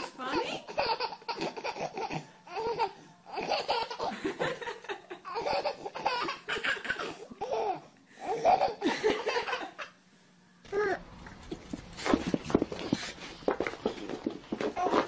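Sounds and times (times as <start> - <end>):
baby laughing: 0.0 - 10.0.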